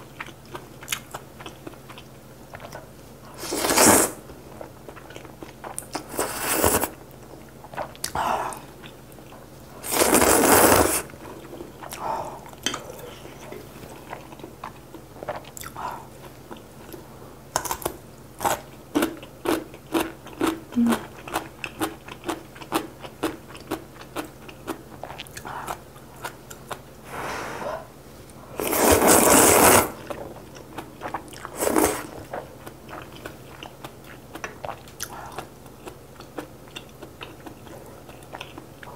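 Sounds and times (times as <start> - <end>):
slurping noodles: 3.4 - 4.2, 6.0 - 7.0, 9.8 - 11.1, 28.6 - 30.2, 31.5 - 32.3
crunchy chewing: 28.6 - 38.9.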